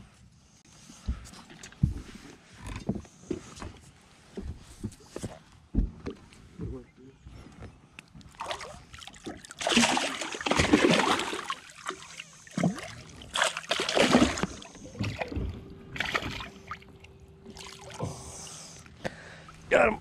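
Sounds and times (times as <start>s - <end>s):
water splashing against boat hull: 8.2s - 18.2s.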